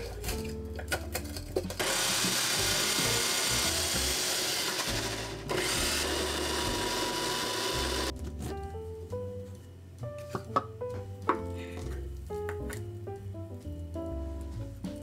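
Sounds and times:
food processor grinding: 1.8s - 8.1s.

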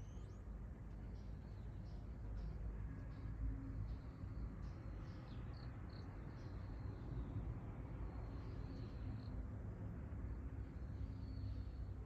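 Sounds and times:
faint high bird chirps: 0.0s - 0.5s.

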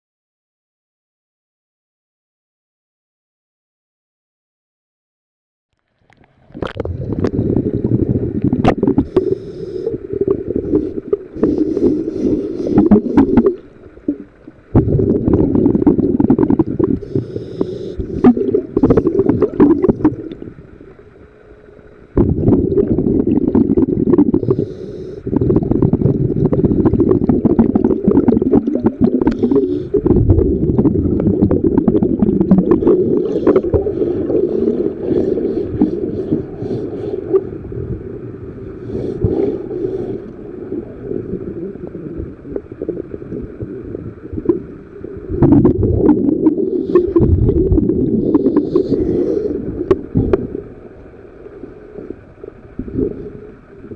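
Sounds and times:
underwater bubbles rumbling: 5.9s - 53.9s.

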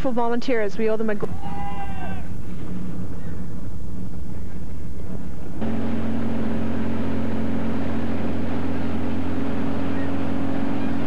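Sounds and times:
boat motor droning: 5.2s - 11.0s.

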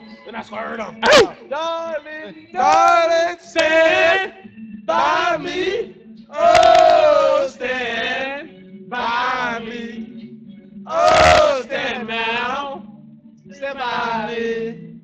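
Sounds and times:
men chanting without words: 0.9s - 1.5s, 2.6s - 9.9s, 10.9s - 12.8s, 13.6s - 14.7s.

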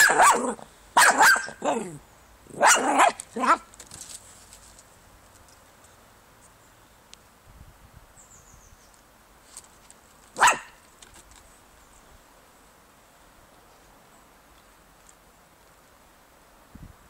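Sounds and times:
dog barking: 0.0s - 1.9s, 2.5s - 3.6s, 10.4s - 10.8s.

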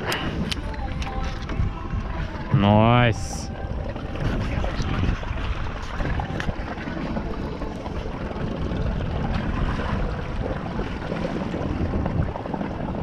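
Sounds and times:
wind buffeting microphone: 0.0s - 13.0s
water slapping against boat hull: 3.8s - 13.0s.

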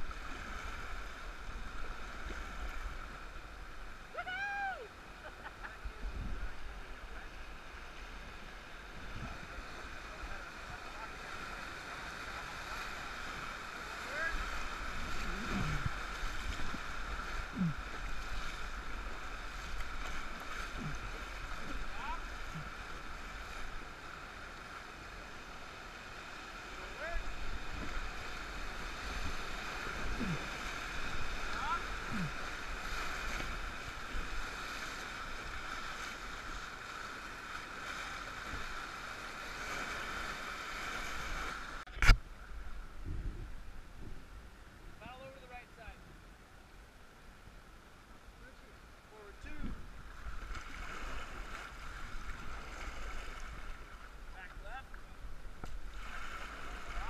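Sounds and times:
whitewater rushing: 0.0s - 42.1s, 49.3s - 57.0s
water splashing against raft: 0.0s - 42.4s, 49.4s - 57.0s.

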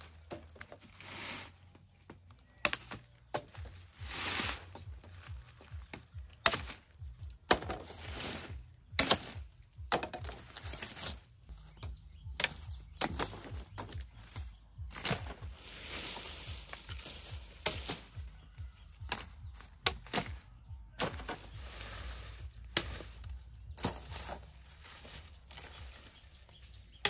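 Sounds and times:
dry leaves rustling: 0.0s - 27.0s
cane stalks knocking together: 4.6s - 21.6s, 22.4s - 27.0s.

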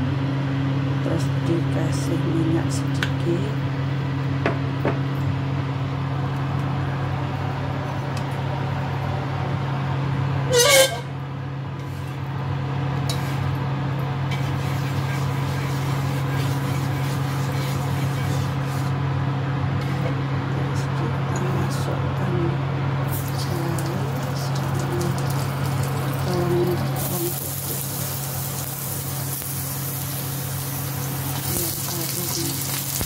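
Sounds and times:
cooktop fan hum: 0.0s - 33.0s
spatula scraping wok: 10.5s - 11.1s, 11.8s - 12.2s, 13.0s - 13.6s, 14.3s - 19.0s, 19.8s - 20.2s.

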